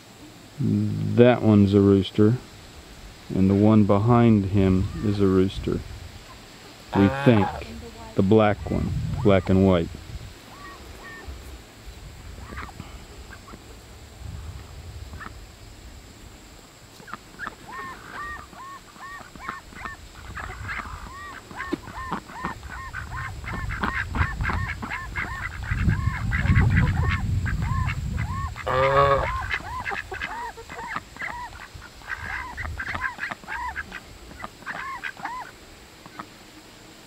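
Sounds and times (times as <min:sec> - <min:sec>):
ducks and goose calling: 0:04.6 - 0:05.4, 0:06.2 - 0:09.7, 0:10.4 - 0:11.4, 0:12.4 - 0:13.7, 0:15.1 - 0:15.4, 0:17.0 - 0:36.4.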